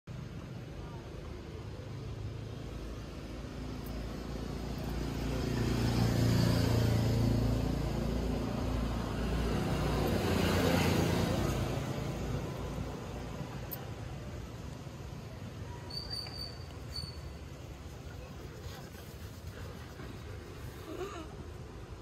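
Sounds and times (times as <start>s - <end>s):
vehicle engine passing by: 1.6s - 14.5s.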